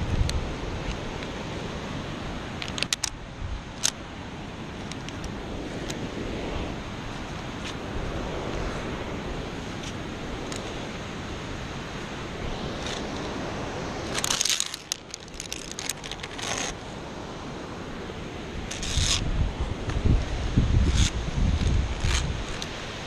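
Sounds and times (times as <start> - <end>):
wind rushing over microphone: 0.0 - 23.0
metallic carabiner clinks and scrapes: 14.1 - 16.8, 18.7 - 19.2, 20.8 - 22.8.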